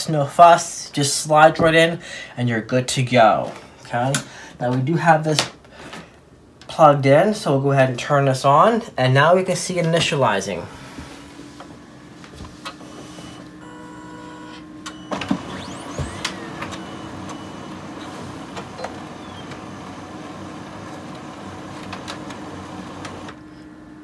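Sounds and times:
laser printer warming up: 12.8s - 23.7s
printer clunk: 14.9s - 23.4s.

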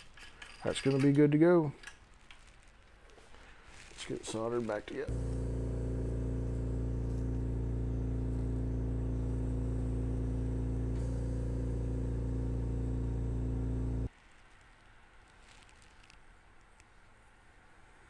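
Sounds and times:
low mechanical hum: 5.1s - 14.1s.

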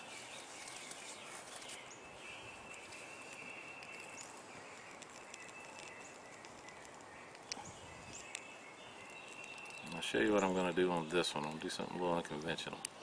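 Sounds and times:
small birds chirping: 0.0s - 13.0s
sharp clicks: 3.7s - 10.0s.

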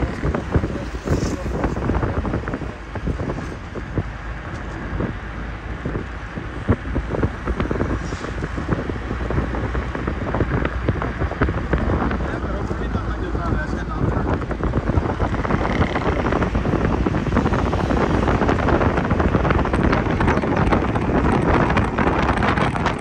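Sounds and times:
low road rumble: 0.0s - 23.0s
wind buffeting microphone: 0.0s - 23.0s
irregular thumps: 14.0s - 23.0s.

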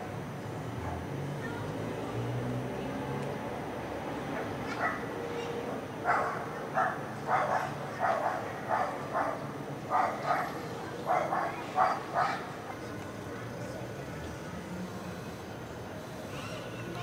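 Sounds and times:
dog barking: 4.7s - 5.1s, 6.1s - 10.5s, 11.1s - 12.4s.

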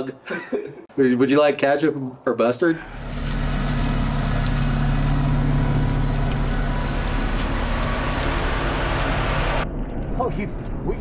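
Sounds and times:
diesel engine droning: 2.8s - 10.2s.

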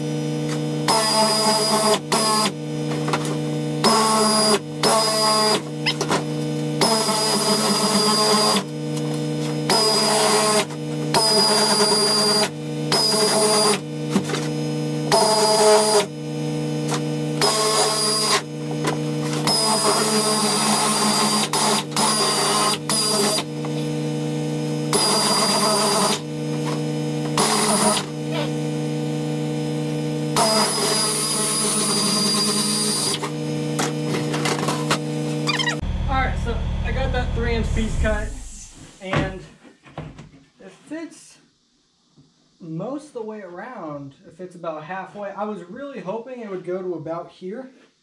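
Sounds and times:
steady hum: 33.2s - 39.5s.

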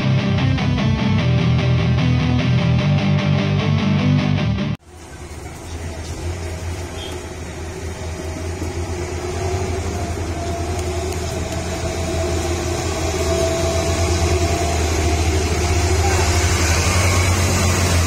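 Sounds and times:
truck diesel engine throbbing: 4.8s - 18.0s.

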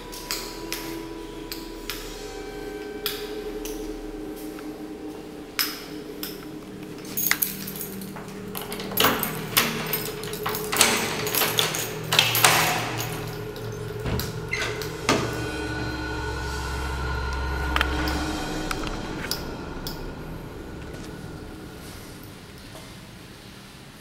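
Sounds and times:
faint hum: 0.0s - 24.0s
keys jangling: 5.6s - 15.4s.

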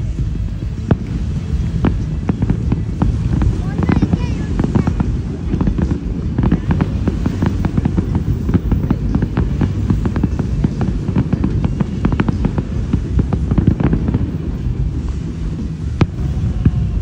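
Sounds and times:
fireworks bangs and crackles: 0.0s - 17.0s
low rumble: 0.0s - 17.0s.

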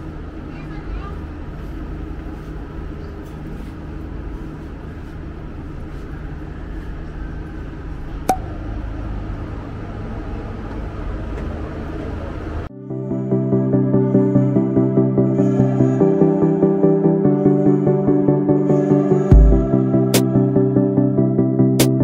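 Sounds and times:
ferry engines rumbling: 0.0s - 12.7s.

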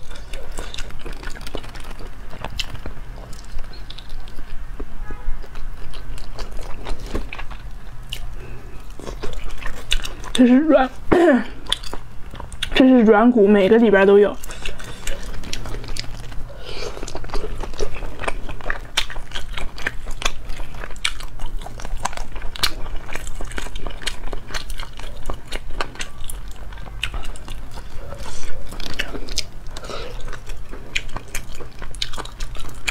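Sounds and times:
wet chewing and crunching: 0.0s - 32.9s.

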